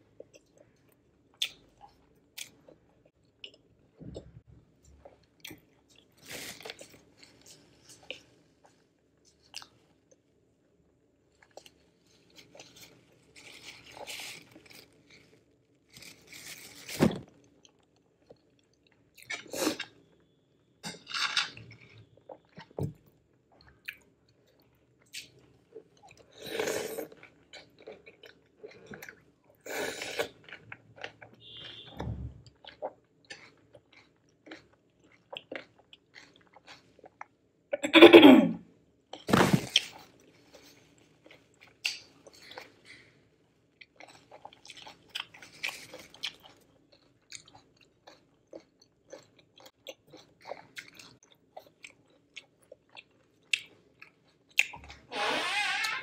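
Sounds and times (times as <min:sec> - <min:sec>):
person chewing and crunching food: 0:00.0 - 0:10.3, 0:11.3 - 0:20.3, 0:21.2 - 0:37.8, 0:39.1 - 0:55.1.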